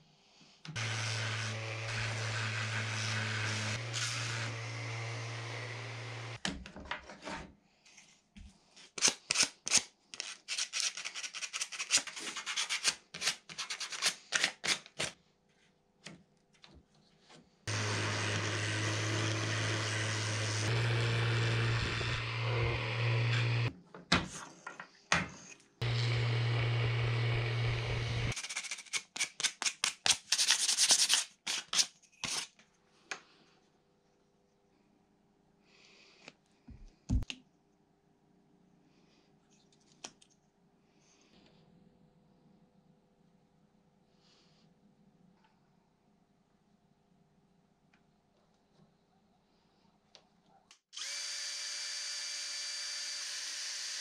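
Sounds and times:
orbital sander on wood: 0.8s - 6.4s, 17.7s - 23.7s, 25.8s - 28.3s.

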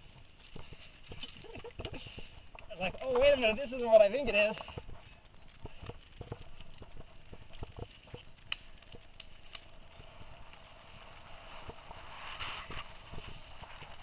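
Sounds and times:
bike knocking and rattling: 0.0s - 9.2s
tyre noise on dirt: 9.6s - 14.0s.

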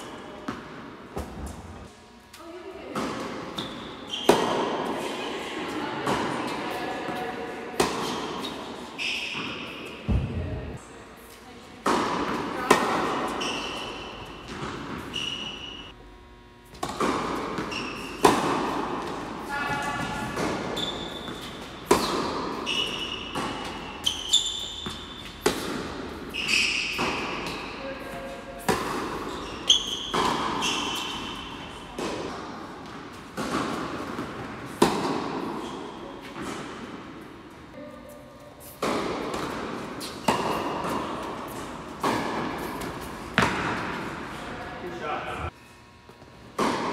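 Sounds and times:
racket hitting tennis ball: 0.0s - 1.8s, 2.9s - 5.0s, 6.0s - 10.5s, 11.8s - 15.8s, 16.6s - 44.6s, 46.5s - 46.9s
short high squeaks: 13.3s - 14.3s, 15.0s - 15.9s, 24.0s - 25.3s, 26.3s - 27.0s, 29.2s - 31.5s.

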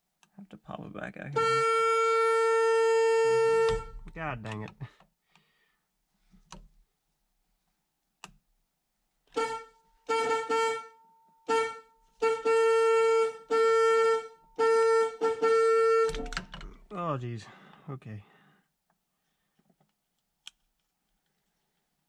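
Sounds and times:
car horn blasts: 1.3s - 4.2s, 9.3s - 16.5s.

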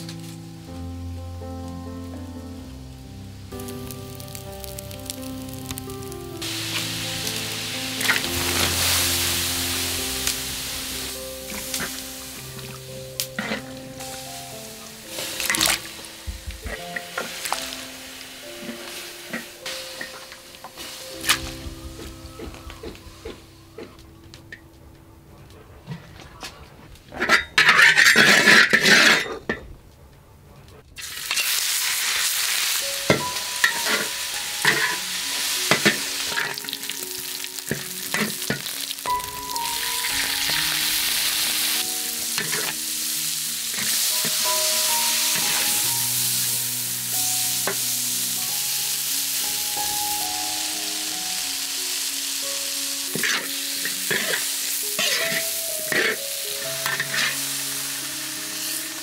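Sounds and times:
hot oil sizzling in a wok: 2.5s - 23.3s, 31.0s - 59.0s
metal spatula scraping wok: 6.4s - 14.1s, 27.1s - 29.6s, 33.0s - 36.7s, 37.6s - 42.8s, 43.6s - 46.6s, 53.1s - 57.8s.

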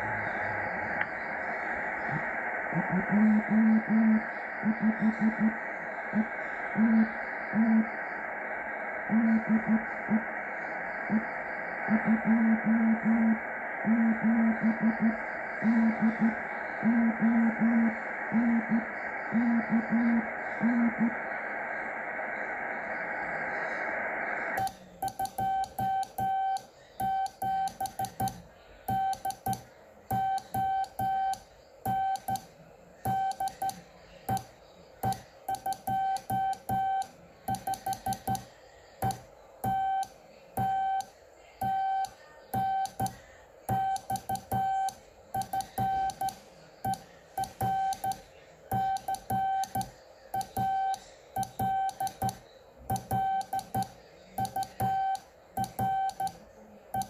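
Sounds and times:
morse code beeps: 24.6s - 32.5s, 33.1s - 56.4s
keying clicks: 37.5s - 39.8s, 45.4s - 50.7s.

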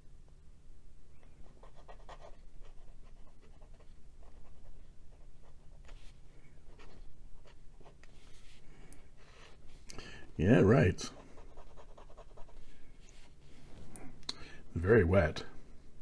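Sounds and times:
fountain pen scratching on paper: 1.5s - 6.0s, 11.1s - 12.7s.

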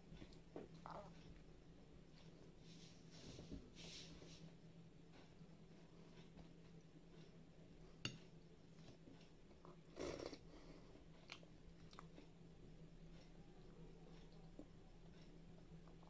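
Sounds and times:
soft mouth clicks of chewing: 11.2s - 12.4s.

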